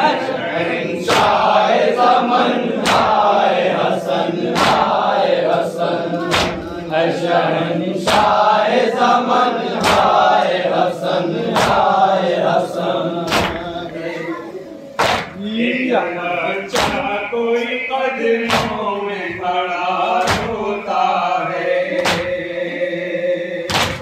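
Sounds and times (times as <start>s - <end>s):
men chanting in unison: 0.0s - 24.0s
hand slaps on chests: 1.1s - 1.4s, 2.8s - 3.2s, 4.5s - 5.0s, 6.2s - 6.8s, 8.1s - 8.4s, 9.8s - 10.6s, 11.5s - 12.0s, 13.2s - 14.0s, 15.0s - 15.4s, 16.7s - 17.1s, 18.5s - 18.8s, 20.2s - 20.6s, 22.0s - 22.4s, 23.7s - 24.0s.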